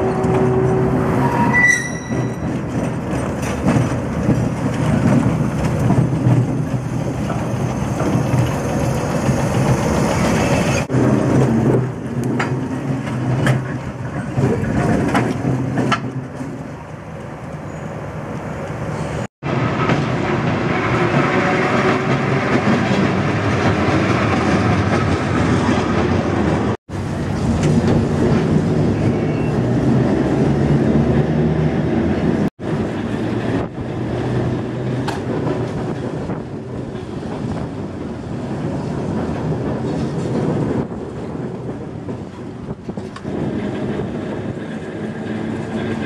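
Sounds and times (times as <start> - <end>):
streetcar rolling on rails: 0.0 - 46.0.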